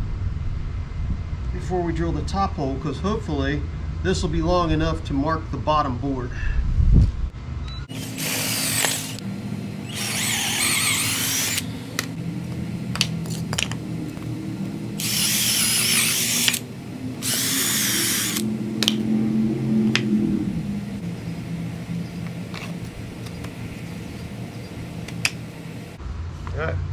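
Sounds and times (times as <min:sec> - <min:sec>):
drill bit cutting wood: 0:07.9 - 0:09.2, 0:09.8 - 0:12.0, 0:15.0 - 0:16.6, 0:17.2 - 0:18.5
electric drill motor: 0:07.9 - 0:14.2, 0:14.9 - 0:19.0.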